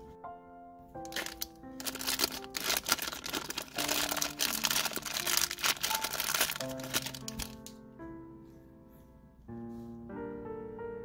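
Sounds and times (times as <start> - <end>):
background music: 0.0 - 11.0
plastic bag crinkling: 1.0 - 7.7.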